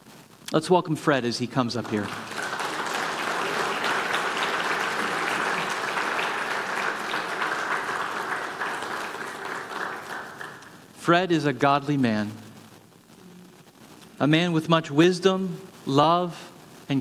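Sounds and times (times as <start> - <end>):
congregation applauding: 1.1 - 11.5.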